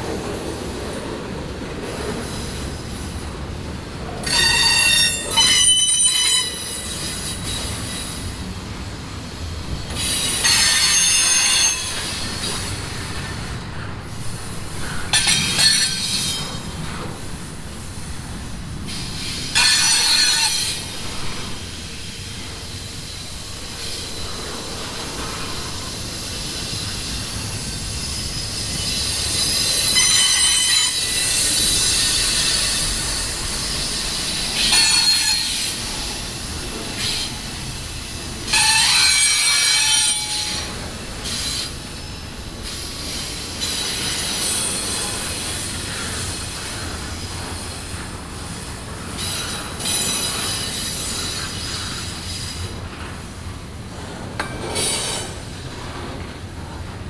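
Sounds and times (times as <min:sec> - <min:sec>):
train rumbling on rails: 0:00.0 - 0:57.0
high-pitched wheel squeal: 0:28.1 - 0:32.9, 0:33.7 - 0:35.7.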